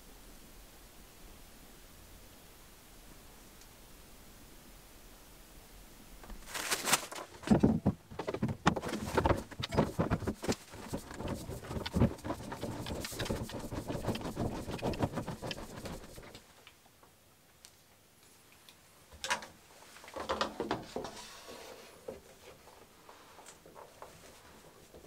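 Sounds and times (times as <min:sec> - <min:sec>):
plastic clicking and scraping: 0:06.2 - 0:16.4.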